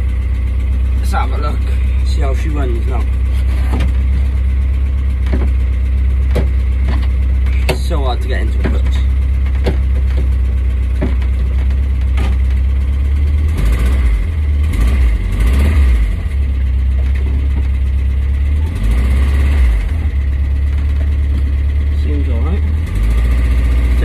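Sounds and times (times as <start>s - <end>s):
van engine idling: 0.0s - 24.0s.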